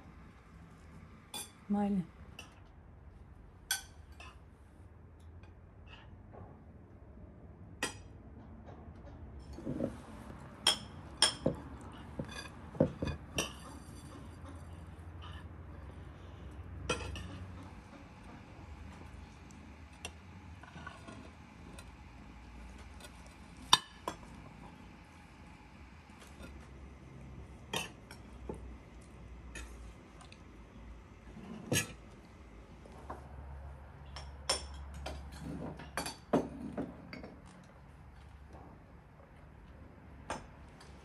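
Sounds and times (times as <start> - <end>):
metal spoons clinking on plates: 10.6 - 11.6, 16.8 - 17.4.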